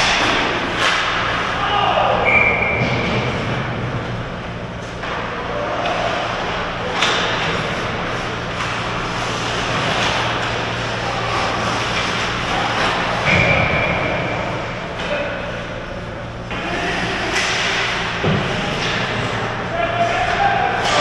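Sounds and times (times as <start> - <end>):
hockey sticks clacking: 0.0 - 1.5, 4.8 - 13.7, 16.5 - 21.0.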